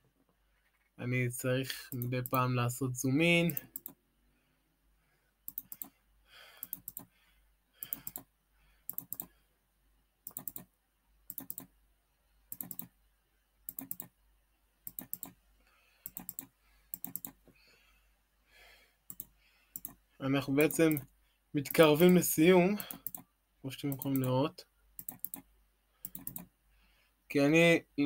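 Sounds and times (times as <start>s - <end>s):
computer mouse clicks: 1.9s - 2.4s, 3.5s - 4.0s, 5.5s - 6.0s, 6.6s - 7.1s, 7.8s - 8.3s, 8.9s - 9.4s, 10.2s - 10.7s, 11.3s - 11.7s, 12.5s - 12.9s, 13.7s - 14.1s, 14.8s - 15.4s, 16.0s - 17.5s, 19.1s - 20.0s, 20.6s - 21.1s, 22.8s - 23.3s, 23.9s - 24.4s, 25.0s - 26.5s.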